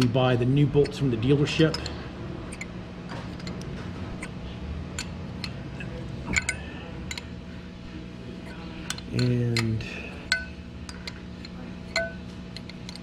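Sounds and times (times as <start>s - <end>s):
steady low hum: 0.0s - 13.0s
metal wrench clinking: 0.8s - 4.3s, 4.9s - 7.3s, 8.4s - 13.0s.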